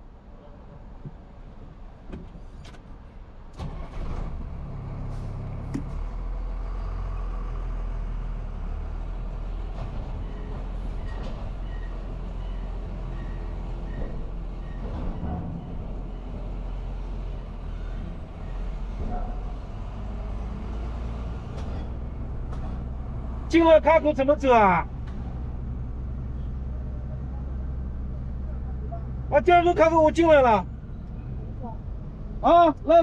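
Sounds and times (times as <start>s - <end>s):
truck engine rumbling: 0.0s - 33.0s.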